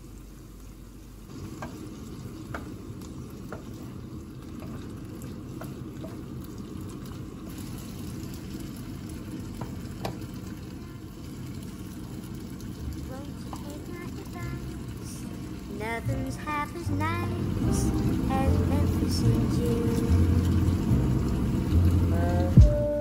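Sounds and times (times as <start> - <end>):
vegetables sizzling in a pan: 0.0 - 23.0
wooden spatula clacking on pan: 2.5 - 2.8.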